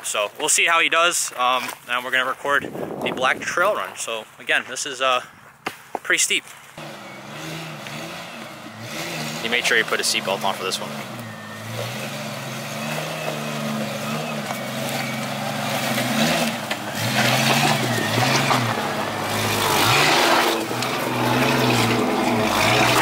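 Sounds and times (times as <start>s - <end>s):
engine revving under load: 6.8s - 23.0s
rock crunching under tyres: 7.6s - 23.0s.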